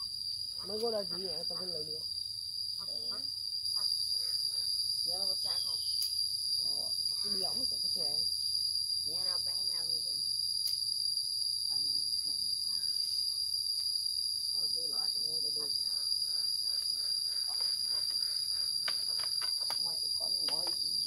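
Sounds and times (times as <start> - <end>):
insects chorus: 0.0 - 21.0.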